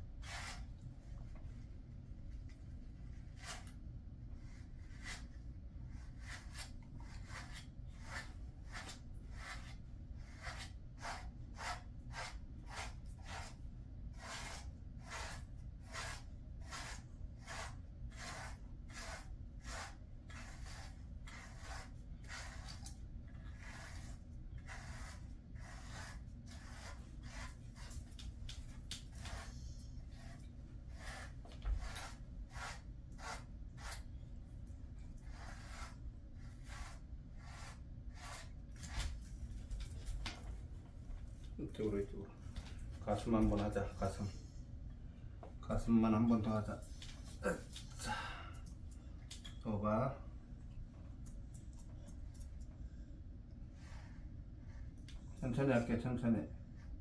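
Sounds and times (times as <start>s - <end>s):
brush raking through dog fur: 0.2s - 0.9s, 2.5s - 3.8s, 4.4s - 13.6s, 14.2s - 34.1s, 35.2s - 39.6s.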